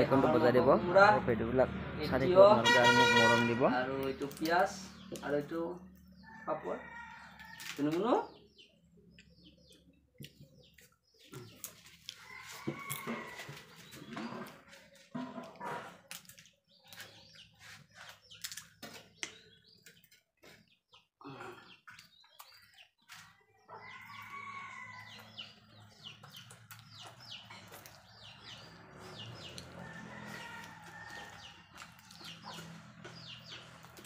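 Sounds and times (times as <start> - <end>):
chickens clucking: 8.6 - 34.0.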